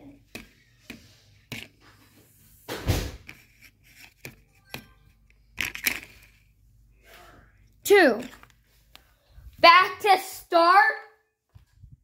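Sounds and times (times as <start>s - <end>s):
thump on wooden floor: 2.7s - 3.3s.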